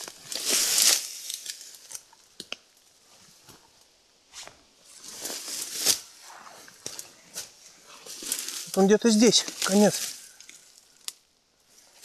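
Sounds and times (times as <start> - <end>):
twigs snapping: 0.0 - 2.6, 8.1 - 11.2
branches and leaves rustling: 0.0 - 12.0.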